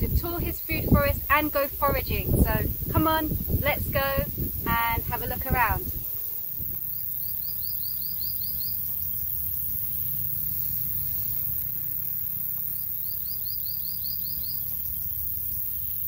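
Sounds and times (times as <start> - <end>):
low rumble: 0.0 - 6.8
faint insect hiss: 0.0 - 16.0.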